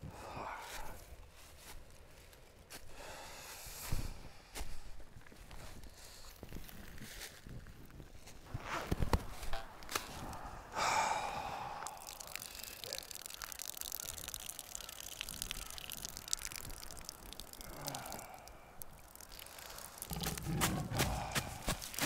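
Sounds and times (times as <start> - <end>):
breathy exhale: 10.1 - 13.0, 17.5 - 18.8, 20.9 - 21.8
urine stream splashing on leaves: 11.8 - 22.0.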